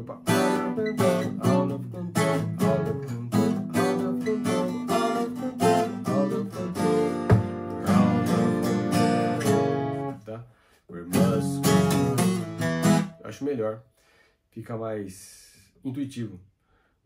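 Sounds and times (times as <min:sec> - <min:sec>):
twelve-string acoustic guitar chords: 0:00.0 - 0:10.2, 0:11.0 - 0:13.3.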